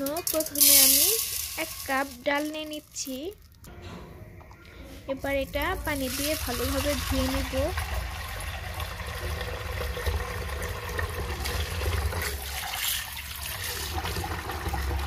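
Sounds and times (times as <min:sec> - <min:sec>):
tap water running into metal pot: 0:00.0 - 0:02.3, 0:05.4 - 0:15.0.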